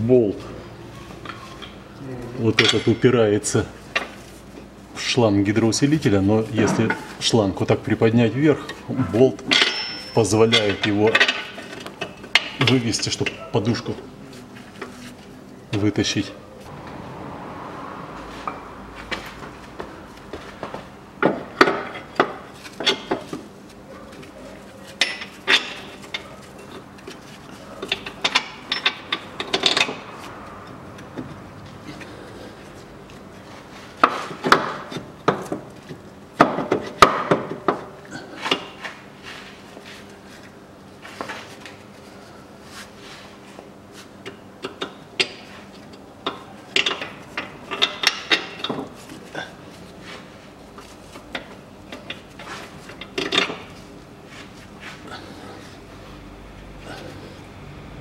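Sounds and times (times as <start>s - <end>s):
metallic clinks and knocks of tools: 9.5s - 11.5s.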